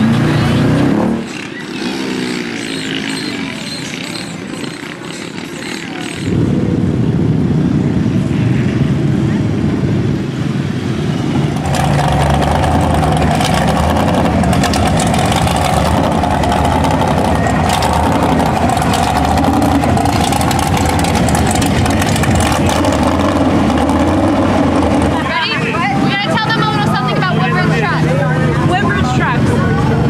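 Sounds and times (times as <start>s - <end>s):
truck engine running rough: 0.0s - 30.0s.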